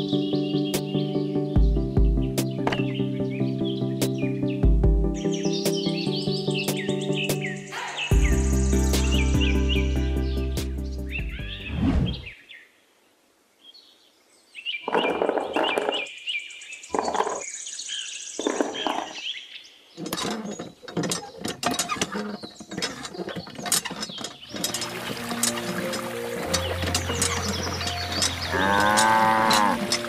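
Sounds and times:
music: 0:00.0 - 0:11.8, 0:24.5 - 0:30.0
birds chirping: 0:00.0 - 0:12.8, 0:13.6 - 0:30.0
toy hand pump clicking: 0:20.0 - 0:30.0.

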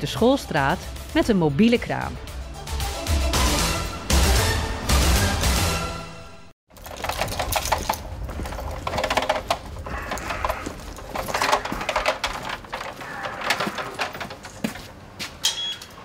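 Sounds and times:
footsteps on brick paving: 0:07.5 - 0:16.0.

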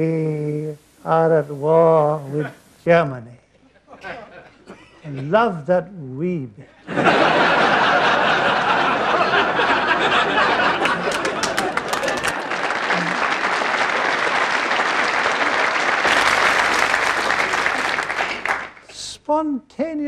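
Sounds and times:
audience applauding: 0:07.2 - 0:18.9.

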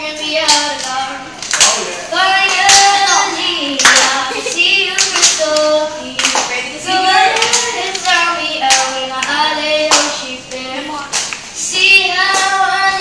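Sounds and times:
girl singing into microphone: 0:00.0 - 0:13.0
hand claps: 0:00.4 - 0:03.2, 0:03.8 - 0:04.2, 0:05.0 - 0:06.6, 0:07.3 - 0:10.2, 0:11.1 - 0:11.4.

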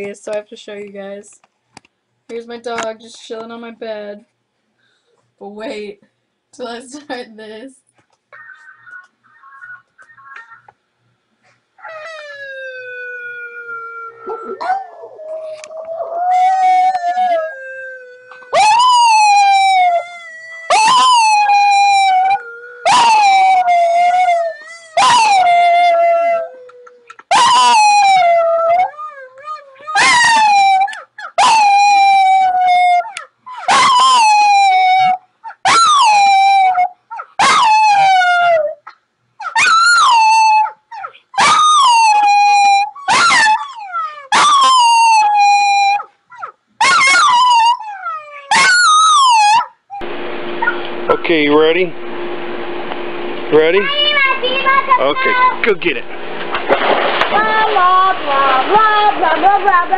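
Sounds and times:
dog howling: 0:11.8 - 0:38.8, 0:39.4 - 0:50.8, 0:57.3 - 0:59.9.

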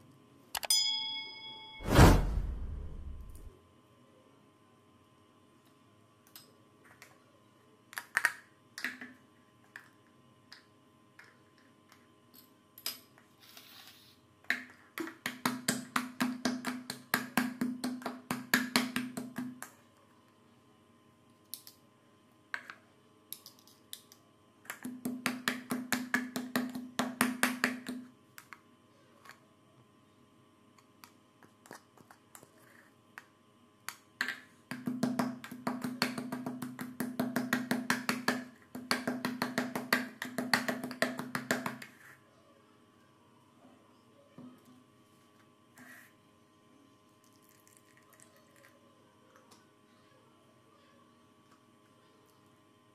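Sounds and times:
pestle pounding in plastic cup: 0:34.7 - 0:41.9.

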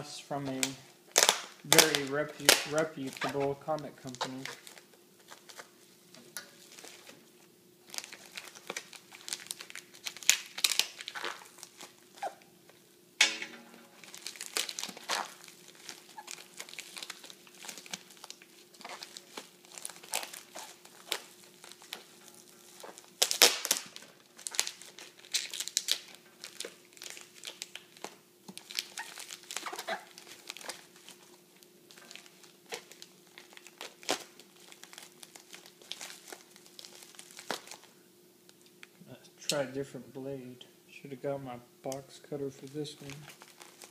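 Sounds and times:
plastic mailer crinkling: 0:00.0 - 0:05.8, 0:06.5 - 0:07.2, 0:07.8 - 0:12.4, 0:13.8 - 0:37.9, 0:42.5 - 0:43.9.

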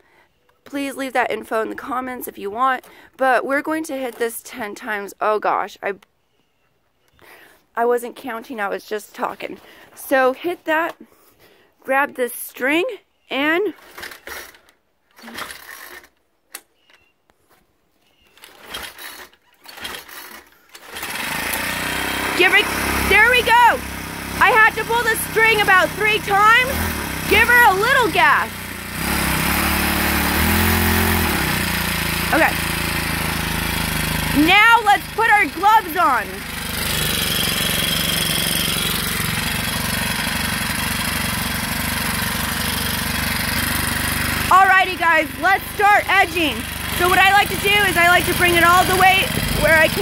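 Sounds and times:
engine pull-starter pulled: 0:13.7 - 0:17.0, 0:18.3 - 0:50.0.

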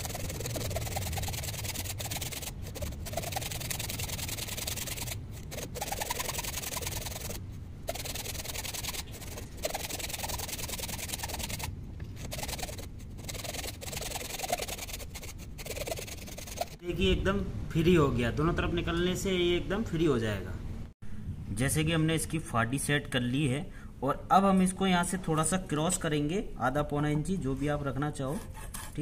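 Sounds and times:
hacksaw rasping on wood: 0:00.0 - 0:16.8, 0:28.3 - 0:29.0.

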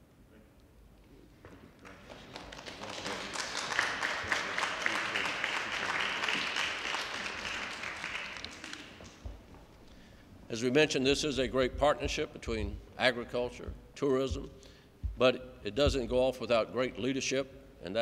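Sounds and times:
audience applauding: 0:01.8 - 0:09.4.

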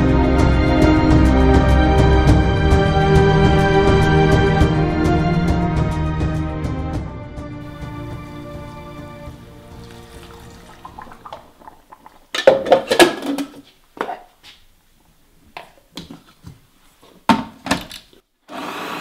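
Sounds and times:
soft music: 0:00.0 - 0:11.4.

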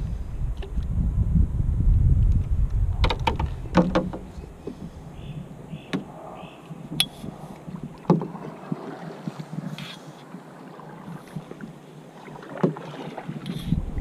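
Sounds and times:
wind buffeting microphone: 0:00.0 - 0:09.8, 0:13.1 - 0:14.0
gear knocking against canoe hull: 0:02.9 - 0:04.9
paddle splashing in water: 0:02.9 - 0:14.0.

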